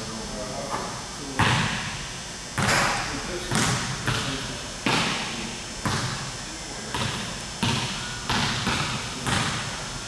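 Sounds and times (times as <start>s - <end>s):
basketball bouncing on wooden floor: 3.5s - 4.3s, 5.8s - 6.2s, 6.9s - 9.7s.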